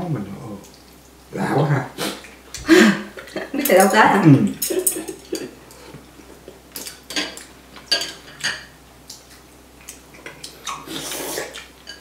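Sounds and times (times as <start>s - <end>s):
utensils clinking on ceramic bowls: 3.2s - 5.8s, 6.8s - 8.7s.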